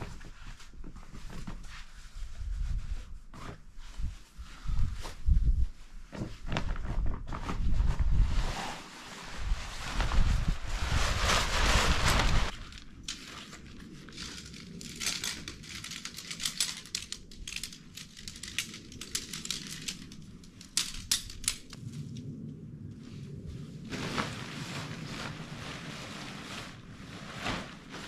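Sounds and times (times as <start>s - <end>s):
tent bag rustling: 0.0s - 20.3s, 23.7s - 28.0s
wind buffeting the microphone: 2.1s - 8.6s, 9.2s - 12.8s
tent poles clicking: 12.5s - 21.8s.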